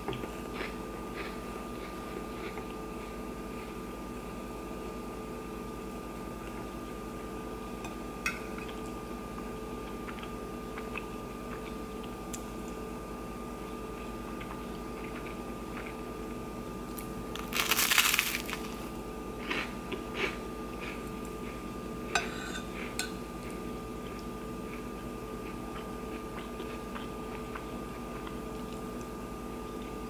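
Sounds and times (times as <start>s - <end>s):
crunchy eating sound: 0.0s - 30.0s
faint steady hum: 0.0s - 30.0s
metal spoon scraping ceramic plate: 22.2s - 22.7s.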